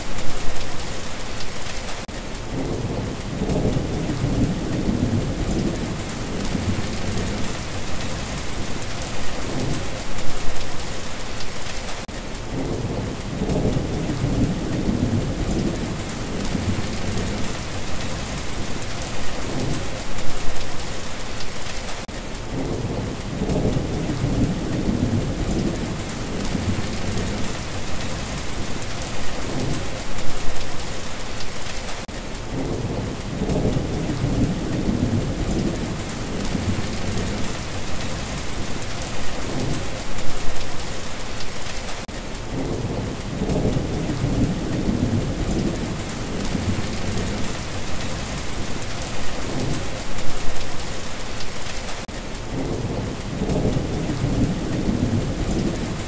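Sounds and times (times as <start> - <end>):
rain hissing: 0.0 - 56.0
rolling thunder: 2.5 - 10.0, 12.5 - 20.0, 22.5 - 30.6, 32.5 - 40.0, 42.5 - 50.0, 52.5 - 56.0.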